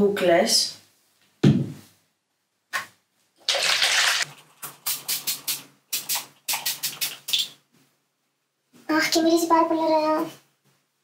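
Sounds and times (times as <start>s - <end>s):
spray bottle hissing: 4.6s - 7.5s.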